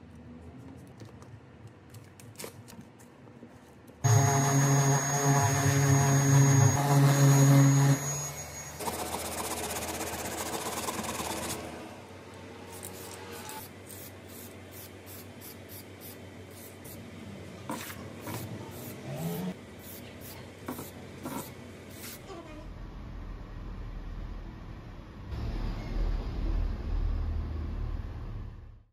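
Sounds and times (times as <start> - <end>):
orbital sander motor hum: 4.1 - 9.5
spray paint can hisses: 12.8 - 17.0.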